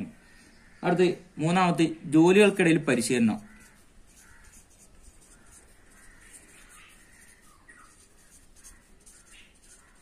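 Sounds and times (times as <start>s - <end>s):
birds calling: 0.0s - 10.0s
marker scratching on paper: 3.0s - 10.0s.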